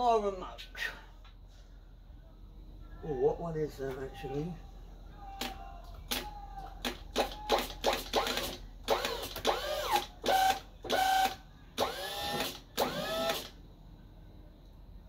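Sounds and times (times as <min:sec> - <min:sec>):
small electric motor whine: 0:08.1 - 0:13.6.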